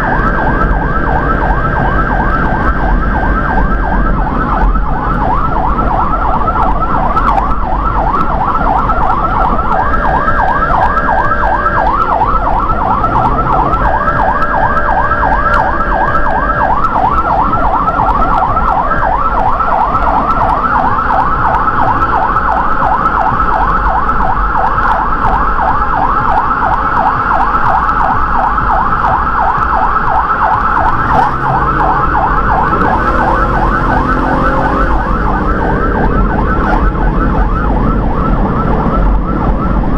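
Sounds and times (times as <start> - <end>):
emergency siren yelping: 0.0 - 39.9
engine and road rumble: 0.0 - 39.9.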